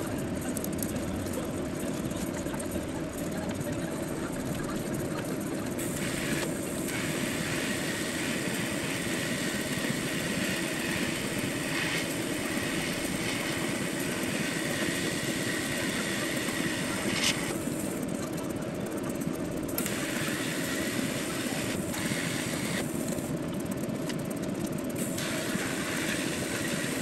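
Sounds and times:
steady low hum: 0.0s - 27.0s
welding arc hissing: 5.8s - 18.0s, 19.8s - 23.3s, 25.0s - 27.0s.

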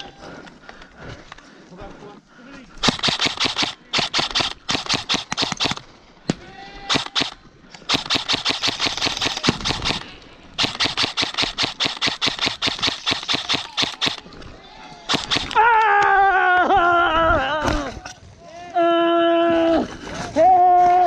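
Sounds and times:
airsoft guns firing full auto: 2.8s - 5.9s, 6.9s - 14.3s, 15.1s - 15.7s.

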